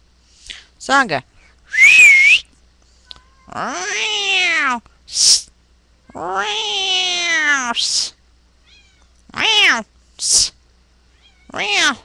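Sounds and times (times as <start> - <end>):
cat meowing: 6.1 - 7.8, 8.6 - 9.8, 11.1 - 12.0.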